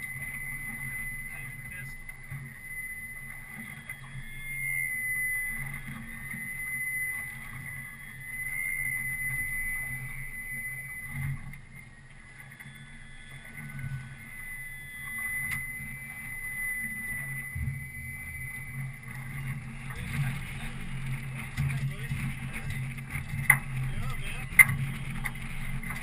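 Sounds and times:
boat motor running: 0.0s - 26.0s.

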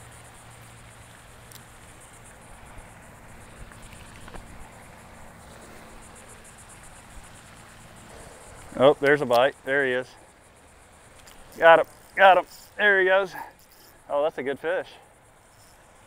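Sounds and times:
insects chirping: 0.0s - 16.0s
faint clicks: 1.4s - 1.7s, 11.1s - 12.7s.

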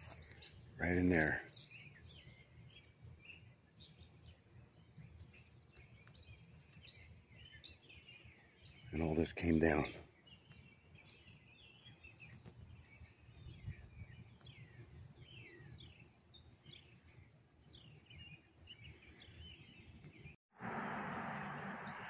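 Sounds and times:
faint songbirds chirping: 0.0s - 22.0s
low outdoor rumble: 20.6s - 22.0s.

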